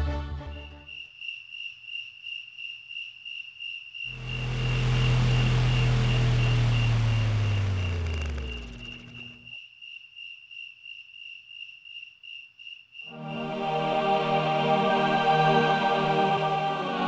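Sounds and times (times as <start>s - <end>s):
crickets chirping: 0.5s - 13.4s
low droning hum: 4.1s - 9.5s
music with sustained tones: 13.1s - 17.0s.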